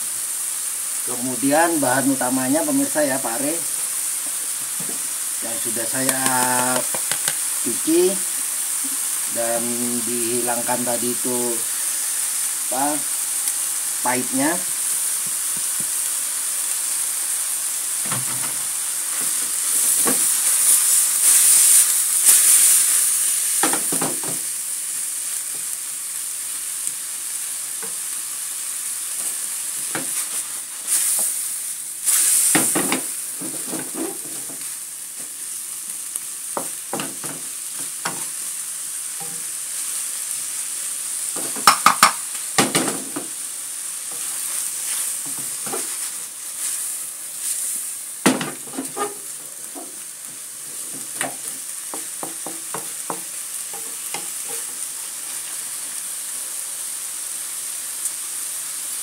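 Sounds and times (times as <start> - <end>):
food sizzling in hot oil: 0.0 - 59.0
spatula clicking against pan: 6.1 - 7.4.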